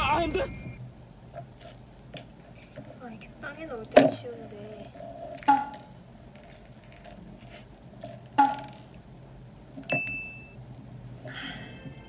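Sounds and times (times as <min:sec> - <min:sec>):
bright ringing ding: 0:09.9 - 0:10.6.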